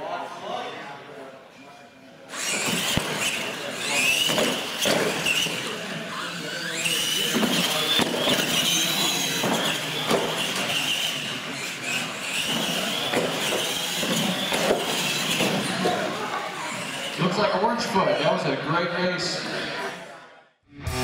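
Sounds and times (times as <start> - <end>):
toy truck motors whining: 2.3 - 18.2.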